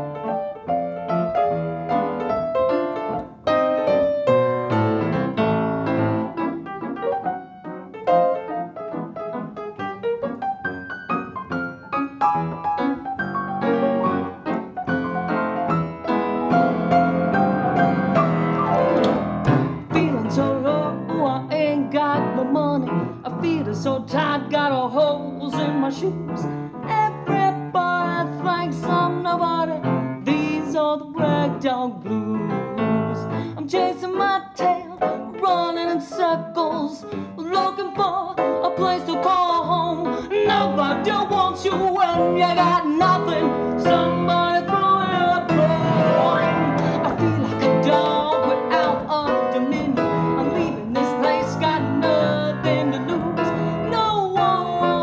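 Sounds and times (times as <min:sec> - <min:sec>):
ragtime piano: 0:00.0 - 0:55.0
woman singing with vibrato: 0:19.8 - 0:55.0.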